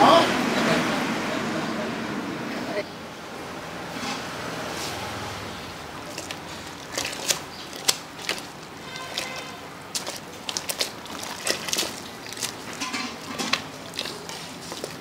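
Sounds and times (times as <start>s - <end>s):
metal utensils clinking on a pot: 7.0s - 15.0s.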